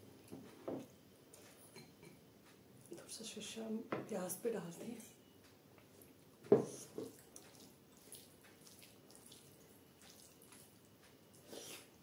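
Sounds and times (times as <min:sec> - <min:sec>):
wet squishing of food by fingers: 0:05.8 - 0:12.0.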